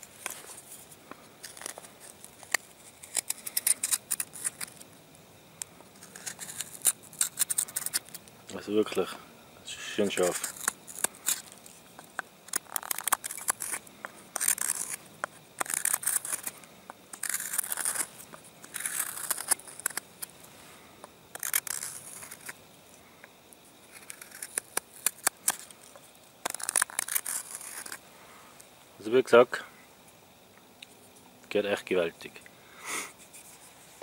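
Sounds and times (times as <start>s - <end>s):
hook knife carving wood: 0.2s - 4.8s, 5.9s - 8.2s, 10.1s - 20.3s, 21.3s - 22.6s, 23.9s - 28.0s.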